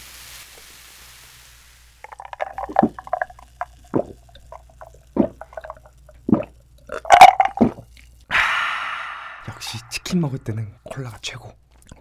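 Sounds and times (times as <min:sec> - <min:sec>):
person gulping a drink: 0:02.0 - 0:08.4
breathy exhale: 0:08.3 - 0:09.9.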